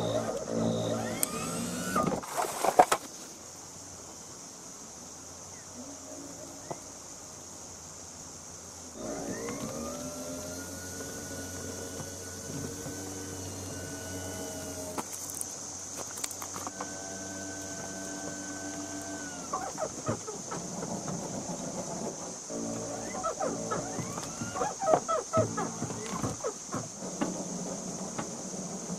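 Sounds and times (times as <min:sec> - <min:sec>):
motor mover whining: 0:00.0 - 0:02.2, 0:09.0 - 0:15.1, 0:16.4 - 0:28.9.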